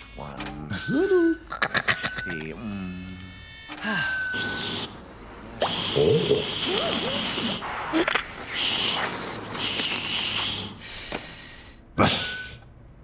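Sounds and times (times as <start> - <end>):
wordless vocal glides: 2.4 - 10.8
hissing bursts: 4.4 - 11.8.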